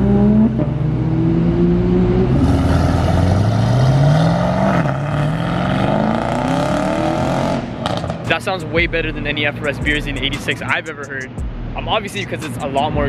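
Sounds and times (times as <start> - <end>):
car engine accelerating hard: 0.0 - 9.3.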